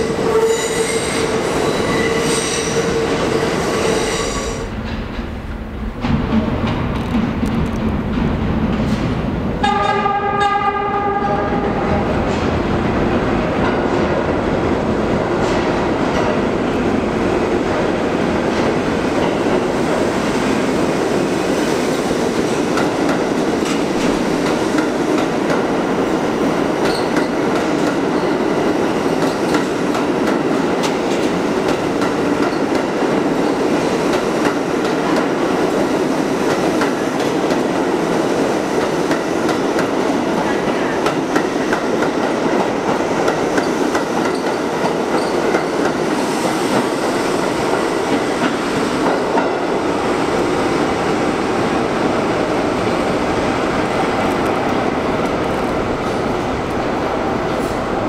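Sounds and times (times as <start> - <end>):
subway train horn: 0.0 - 4.8, 9.5 - 12.5.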